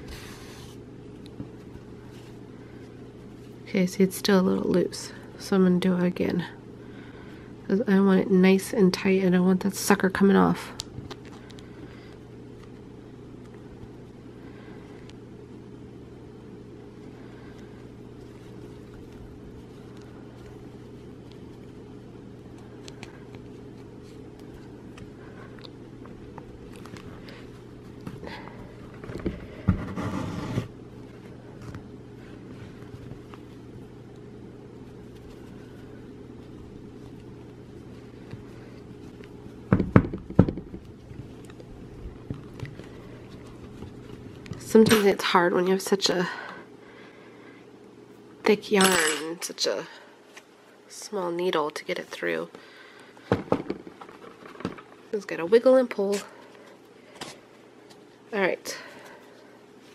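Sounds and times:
steady low hum: 0.0 - 59.9
yarn and needle ticks and rustles: 32.8 - 45.4.

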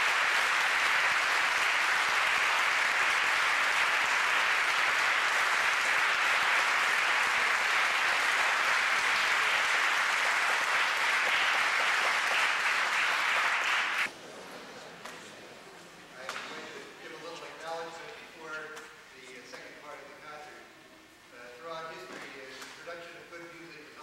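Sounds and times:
audience applauding: 0.0 - 14.1.

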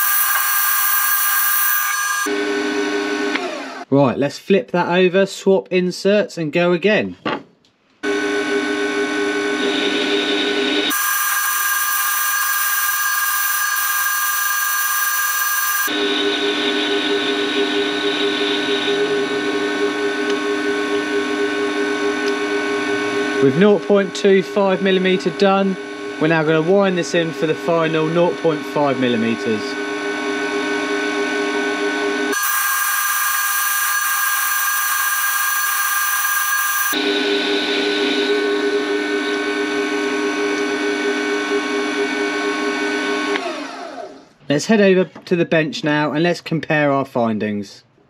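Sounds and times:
cutting into aluminium: 0.0 - 2.4, 10.8 - 16.0, 32.3 - 38.2
lathe motor whining: 0.0 - 3.9, 8.0 - 44.3.

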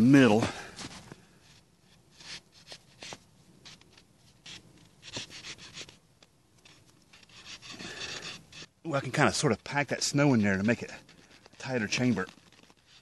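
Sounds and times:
wooden dowel crunching in snow: 0.7 - 6.0, 6.7 - 13.0.

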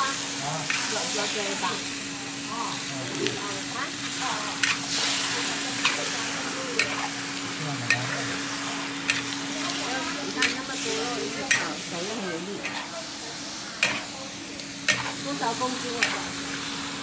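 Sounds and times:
pork sizzling in a wok: 0.0 - 17.0
spatula knocking and scraping wok: 6.8 - 7.1, 9.0 - 9.4, 10.3 - 10.8, 11.4 - 11.8, 12.6 - 12.9, 13.8 - 14.1, 14.8 - 15.2, 15.9 - 16.3.

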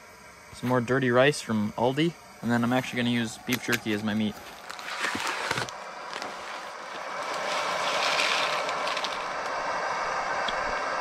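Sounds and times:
food pouch crinkling and tearing: 3.4 - 9.6
dry rice pouring into pot: 6.1 - 9.6.

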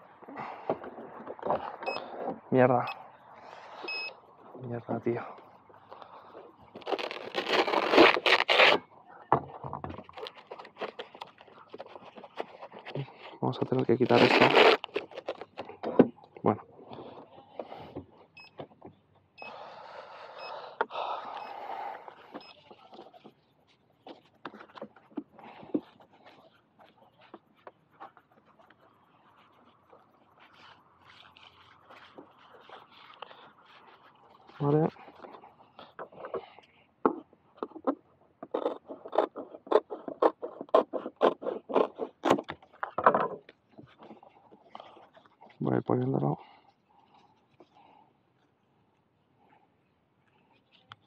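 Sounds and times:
velcro ripping: 6.7 - 8.8, 13.9 - 15.6.

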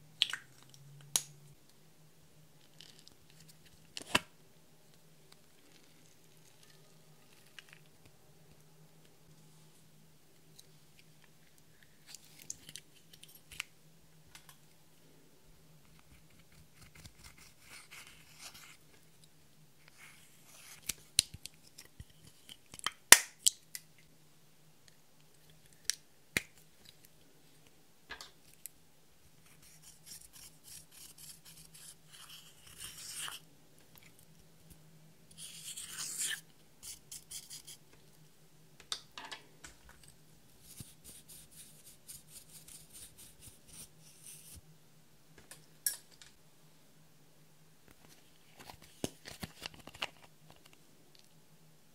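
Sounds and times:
scratchy rubbing: 35.4 - 37.8.

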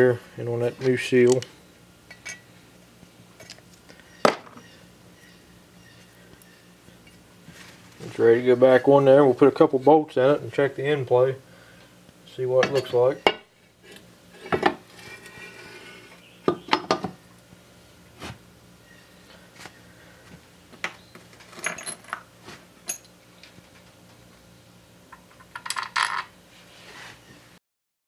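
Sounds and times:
metal clinks and knocks: 21.4 - 22.2.

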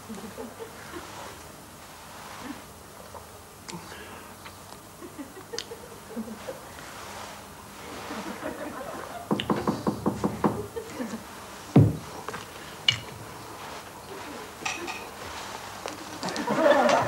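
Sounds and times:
heavy thud: 11.7 - 12.1.

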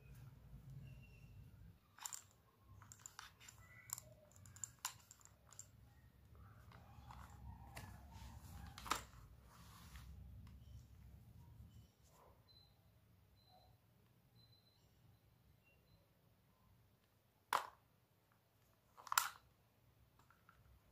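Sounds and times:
plastic headset handling clicks: 2.0 - 9.2, 18.9 - 19.5.

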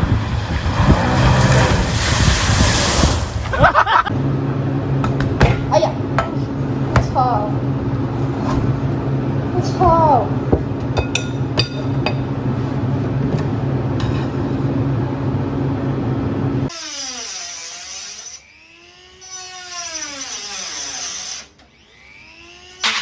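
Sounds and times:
steady low hum: 0.0 - 16.7
electric rotary tool whining: 16.7 - 23.0.

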